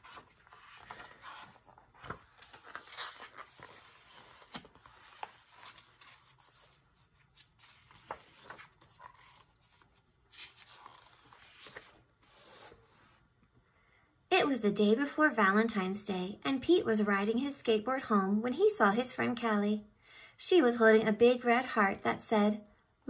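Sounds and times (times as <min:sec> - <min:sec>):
paper pages rustling: 0:00.0 - 0:13.2.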